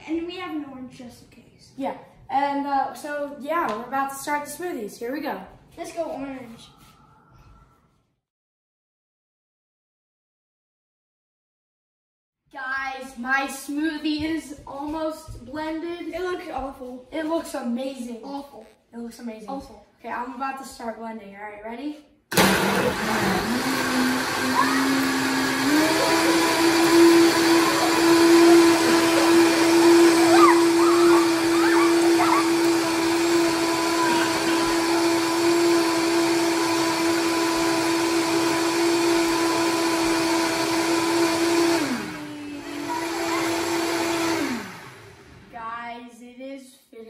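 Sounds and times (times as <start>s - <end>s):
blender motor running: 22.3s - 45.5s.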